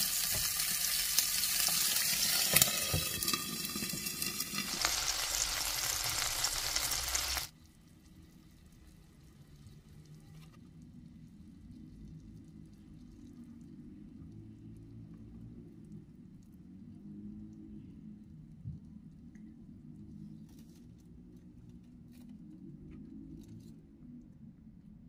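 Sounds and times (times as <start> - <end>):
food sizzling in a pan: 0.0 - 7.5.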